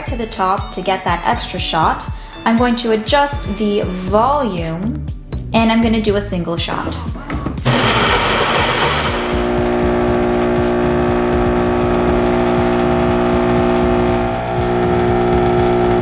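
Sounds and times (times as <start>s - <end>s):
espresso machine pump humming: 7.7s - 16.0s
espresso machine whir: 7.7s - 16.0s.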